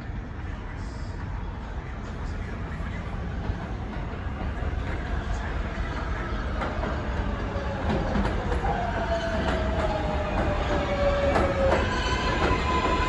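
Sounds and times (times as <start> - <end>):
train rumble: 0.0 - 13.0
train whine falling in pitch: 8.6 - 13.0.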